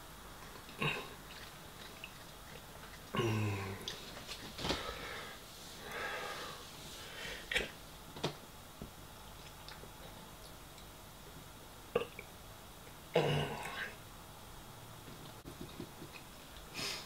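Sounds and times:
man breathing and sniffing: 4.5s - 7.6s, 16.7s - 17.0s.

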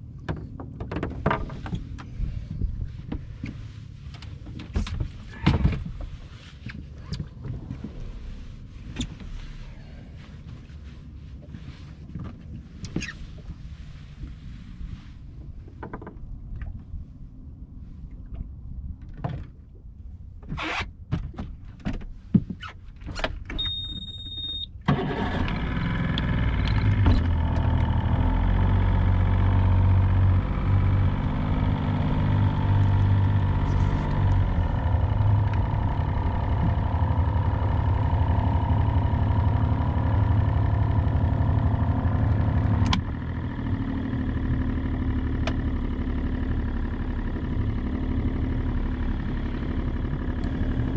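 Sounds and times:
short high beep: 23.6s - 24.7s
boat engine running: 25.0s - 50.9s.

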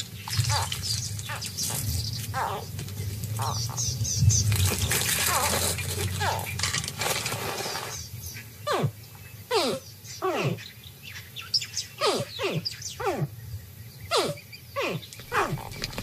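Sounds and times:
crocodile hatchlings chirping: 0.0s - 2.7s, 3.4s - 4.4s, 5.0s - 6.6s, 8.6s - 10.6s, 12.0s - 13.4s, 14.1s - 16.0s.

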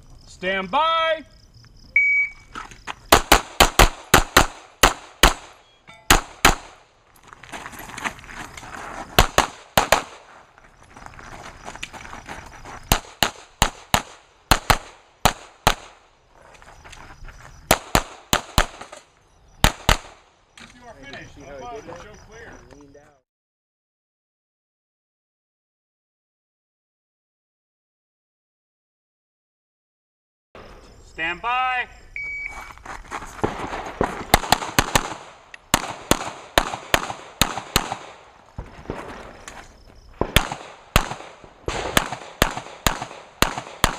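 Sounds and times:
electronic start beep: 2.0s - 2.5s, 32.2s - 32.7s
pistol shots echoing: 3.1s - 6.8s, 9.2s - 10.2s, 12.9s - 16.0s, 17.7s - 19.0s, 19.6s - 20.2s, 33.4s - 39.0s, 40.2s - 43.9s.

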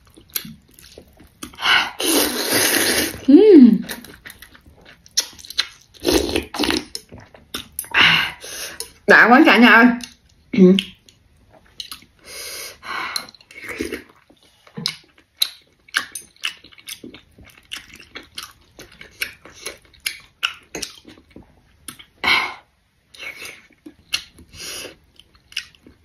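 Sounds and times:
chewing with wet mouth smacks: 0.0s - 1.6s, 3.8s - 6.0s, 6.6s - 7.9s, 10.0s - 12.2s, 13.2s - 22.2s, 23.1s - 26.0s.

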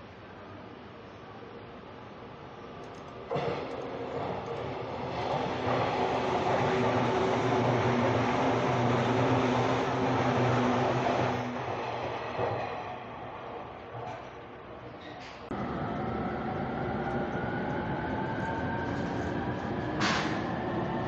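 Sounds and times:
train wheels rumbling on rails: 3.0s - 21.0s.

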